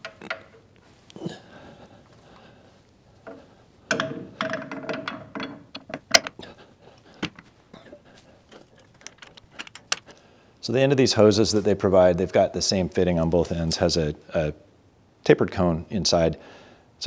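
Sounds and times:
metal clanks and scrapes: 3.3s - 6.5s.

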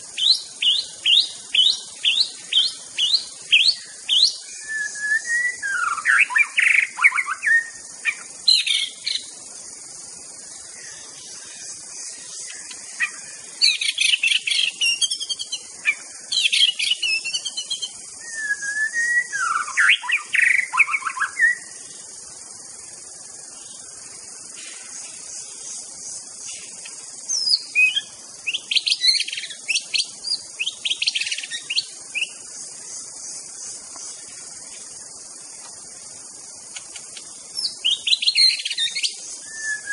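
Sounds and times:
songbird whistling and chattering: 0.0s - 9.3s, 12.4s - 21.7s, 27.3s - 32.4s, 36.8s - 39.9s
steady high hiss: 0.0s - 39.9s.

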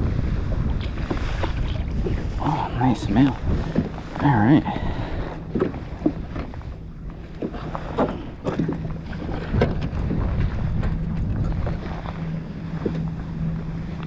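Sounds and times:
low steady hum: 0.0s - 14.0s
wind buffeting microphone: 0.0s - 14.0s
knocks and taps in kayak: 5.5s - 12.0s.

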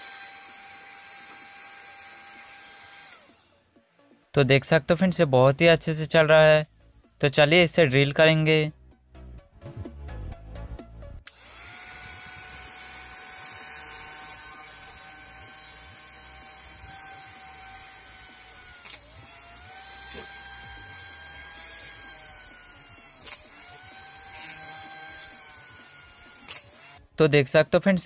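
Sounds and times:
electric drill whining: 0.0s - 4.2s, 11.2s - 27.2s.

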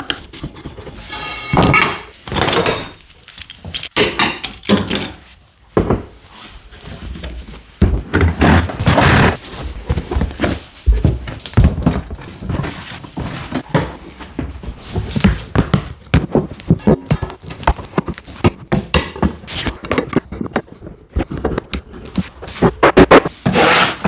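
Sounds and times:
clamps and tools knocking: 0.0s - 5.2s.

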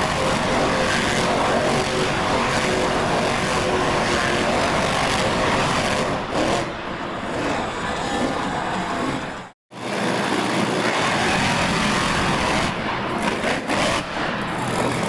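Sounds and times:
monster truck engines revving: 0.0s - 15.0s.

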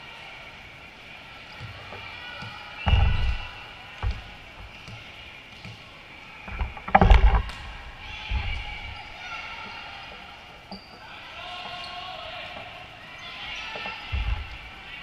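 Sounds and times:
volleyball hits and thuds: 2.4s - 4.3s.

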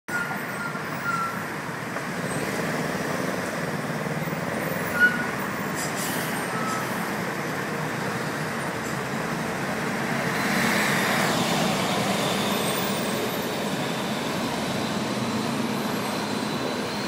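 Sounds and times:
road traffic noise: 0.1s - 17.0s.

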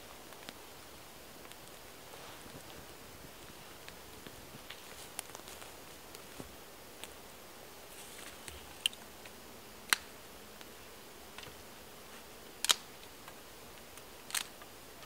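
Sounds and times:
faint steady hiss: 0.0s - 15.0s
wood crackling in campfire: 0.0s - 15.0s.

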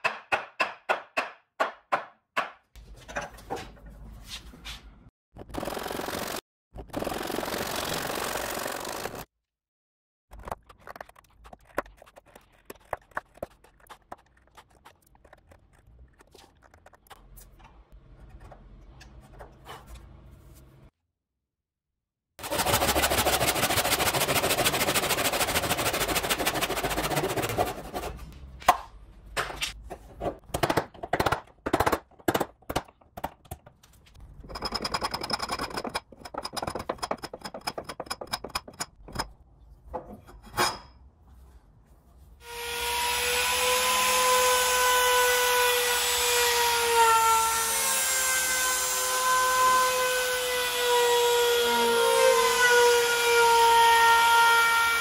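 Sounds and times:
trim router whining: 48.6s - 53.8s.

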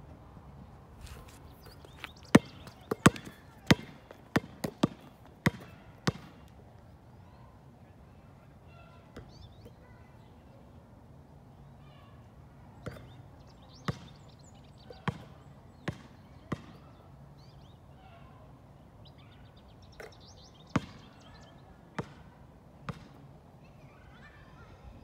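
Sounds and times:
basketball bouncing on hard court: 1.9s - 6.4s, 15.0s - 16.8s, 20.7s - 21.0s, 22.0s - 22.2s, 22.9s - 23.2s.

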